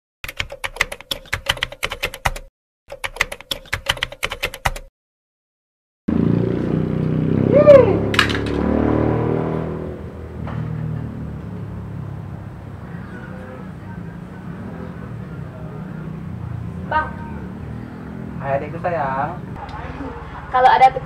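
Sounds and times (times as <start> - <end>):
typewriter key clicks: 0.2 - 4.9.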